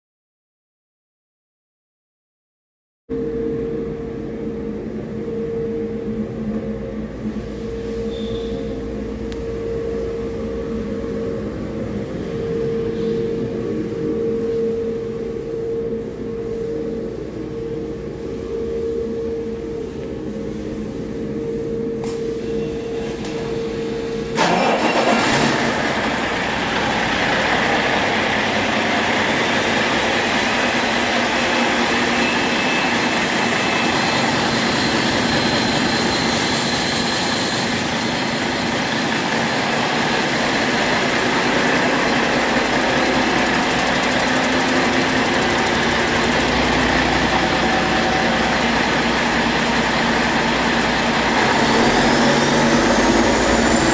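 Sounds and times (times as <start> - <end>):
diesel engine running: 22.4 - 53.9
starter motor whine: 24.3 - 53.9.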